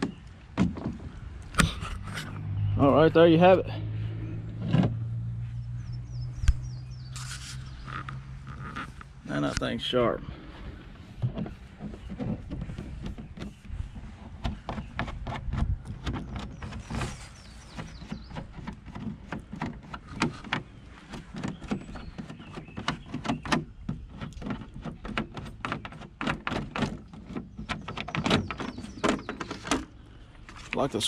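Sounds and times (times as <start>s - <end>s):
hard plastic clicks and knocks: 11.2s - 17.1s, 17.7s - 30.0s.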